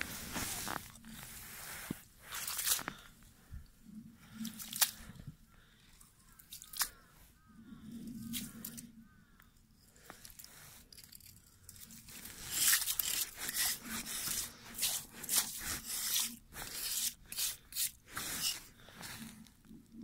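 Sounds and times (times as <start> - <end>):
metal scoop scraping ice: 10.9 - 18.7.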